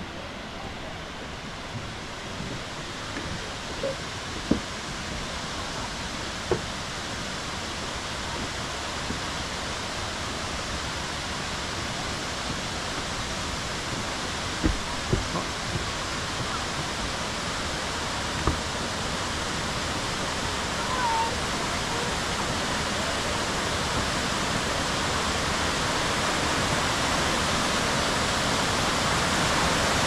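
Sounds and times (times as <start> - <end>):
river and waterfall rushing: 0.0 - 30.0
soft knocks: 3.1 - 4.7, 6.5 - 6.7, 14.6 - 16.6.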